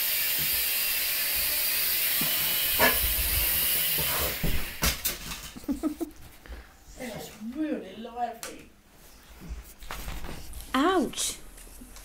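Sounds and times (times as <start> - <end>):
toy quadcopter propellers whirring: 0.0 - 5.0
quadcopter knocking on floor: 2.1 - 5.4.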